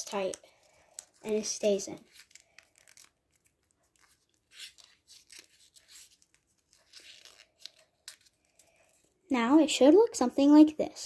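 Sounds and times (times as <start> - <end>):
paper rustling as it is folded: 0.0 - 9.2.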